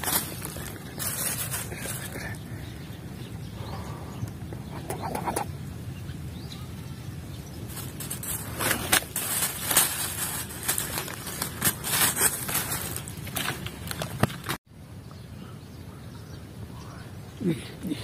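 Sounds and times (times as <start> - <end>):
rustling and scraping: 0.0 - 2.4, 7.6 - 14.6.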